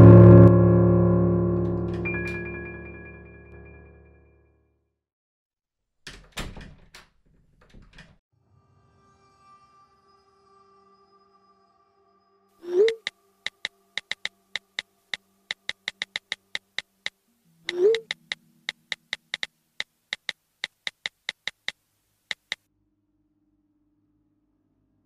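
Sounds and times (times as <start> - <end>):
smartphone keyboard tap clicks: 12.9 - 14.8, 15.5 - 17.1, 17.7 - 19.5, 20.1 - 22.6.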